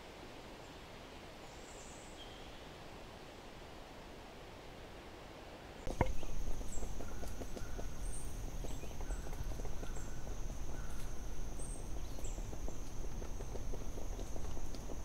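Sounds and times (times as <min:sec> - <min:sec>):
soft hiss: 0:00.0 - 0:15.0
small ticks and crackles: 0:05.8 - 0:15.0.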